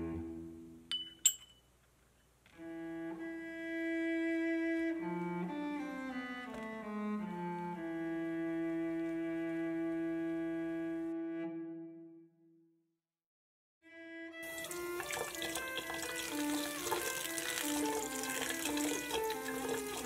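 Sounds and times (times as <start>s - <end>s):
slow cello music: 0.0s - 0.8s, 2.6s - 12.4s, 13.8s - 20.0s
spoon clinking on ceramic bowl: 0.9s - 1.7s.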